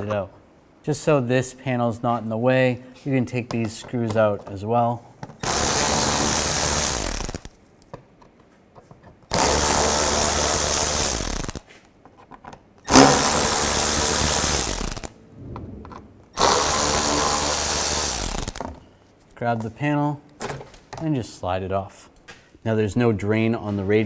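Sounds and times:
cordless electric ratchet spinning screws: 5.4s - 7.5s, 9.3s - 11.7s, 12.9s - 15.2s, 16.4s - 18.7s.

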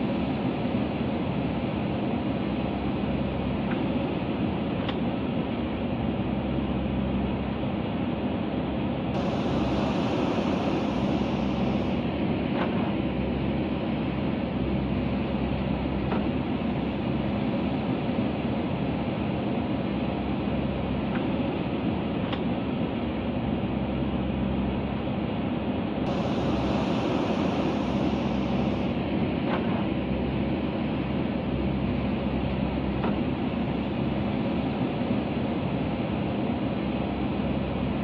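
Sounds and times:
diesel engine running: 8.7s - 25.4s, 26.0s - 36.1s.

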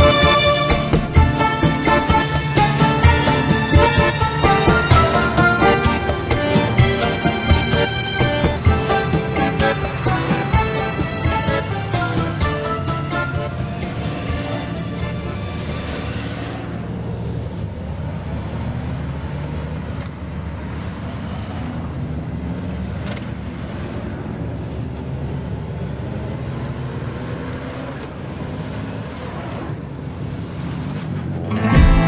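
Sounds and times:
music: 0.0s - 16.2s, 31.5s - 32.0s
motorcycles riding past: 0.0s - 24.8s.

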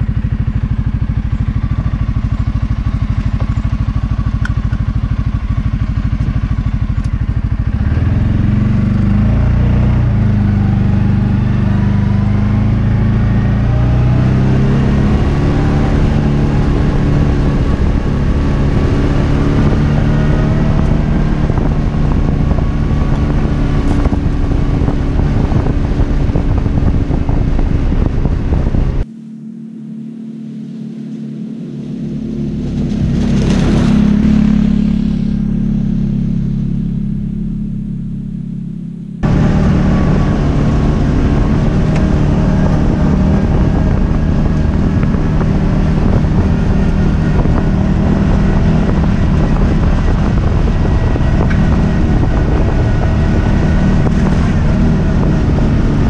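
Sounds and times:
buggy engine running: 0.0s - 56.0s
buggy passing by: 29.8s - 37.8s, 39.2s - 56.0s.

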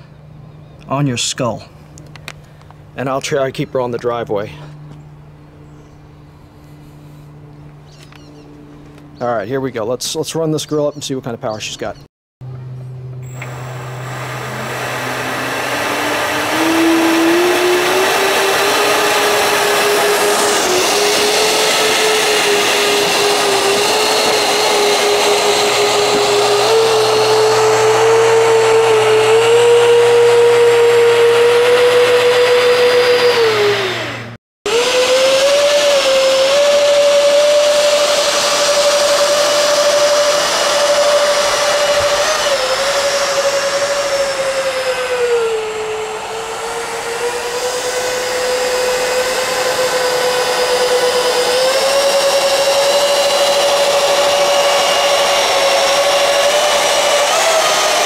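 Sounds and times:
electric ducted fans whining: 0.0s - 58.0s.

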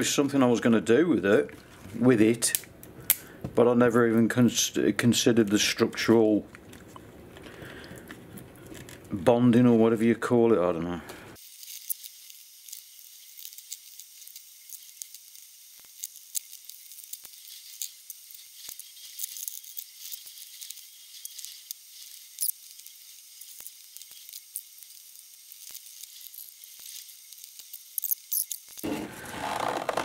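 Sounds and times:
sharp ticks of resin releasing: 11.6s - 28.8s.

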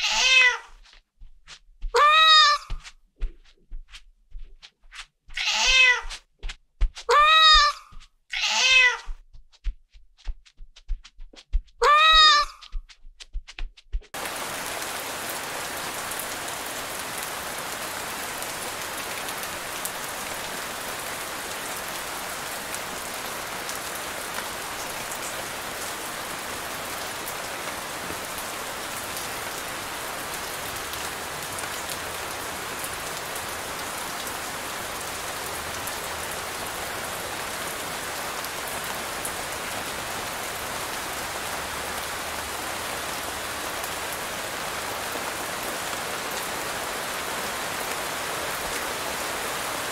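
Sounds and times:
steady rain hissing: 14.2s - 49.9s.

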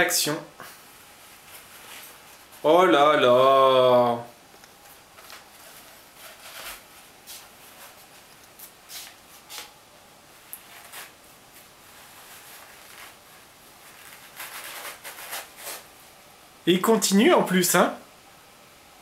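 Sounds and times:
paper towel rustling and tearing: 0.7s - 2.9s, 4.8s - 9.8s, 10.4s - 16.0s.

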